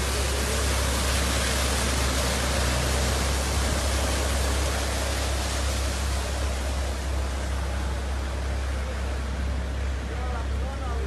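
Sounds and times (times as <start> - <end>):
constant low rumble: 0.0 - 11.0
heavy rain: 0.0 - 11.0
tyres in standing water: 0.0 - 11.0.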